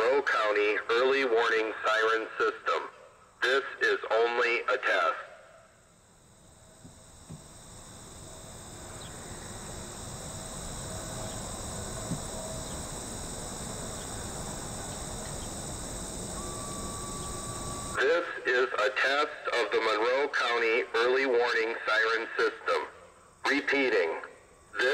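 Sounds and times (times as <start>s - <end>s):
high drone of insects: 0.0s - 24.9s
short steady tone: 6.4s - 18.0s.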